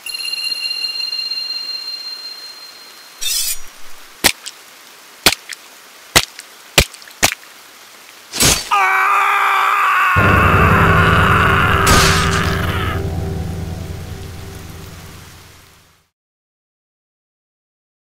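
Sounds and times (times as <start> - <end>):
high steady ringing tone: 0.0 - 3.2
faint rain hiss: 0.0 - 16.1
loud long scream: 8.7 - 13.2
sharp cracking hits: 10.2 - 15.7
music: 10.2 - 15.8.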